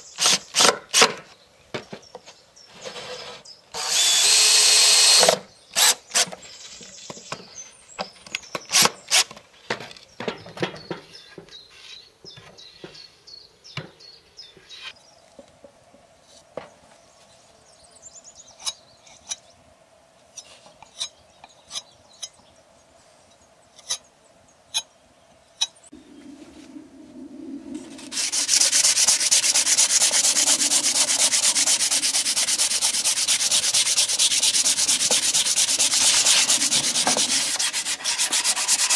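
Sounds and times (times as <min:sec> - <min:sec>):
cordless drill: 0:00.2 - 0:01.0, 0:03.8 - 0:06.3
sandpaper rubbing on plywood: 0:27.9 - 0:38.9.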